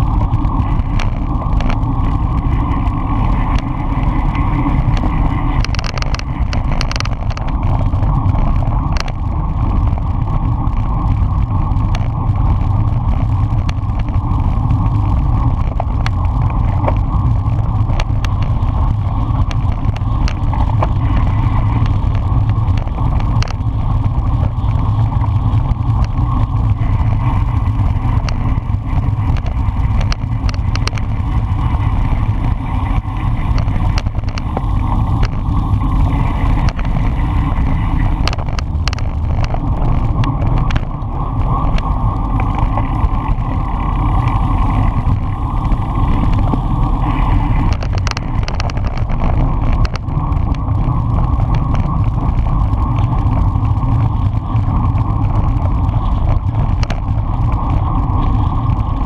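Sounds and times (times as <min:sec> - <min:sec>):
tyres rumbling on road: 0:00.0 - 0:59.0
wind rushing over microphone: 0:00.0 - 0:59.0
bike clicks and knocks: 0:00.3 - 0:02.5, 0:03.4 - 0:11.0, 0:11.8 - 0:23.8, 0:33.2 - 0:35.6, 0:38.2 - 0:42.7, 0:47.6 - 0:53.4.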